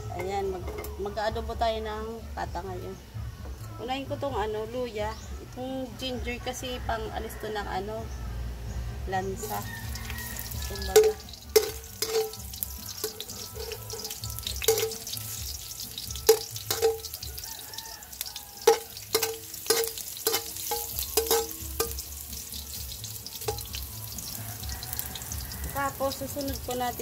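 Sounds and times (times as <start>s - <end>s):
spatula knocking metal wok: 9.4s - 26.8s
ginger sizzling in hot oil: 9.4s - 27.0s.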